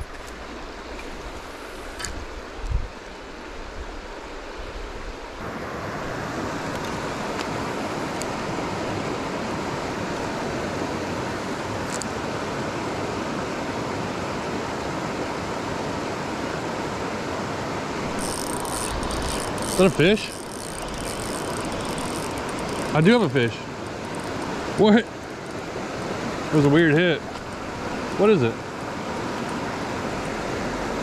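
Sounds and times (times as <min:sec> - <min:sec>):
creek water rushing over rocks: 0:17.8 - 0:31.0
spinning reel cranking: 0:18.1 - 0:25.6.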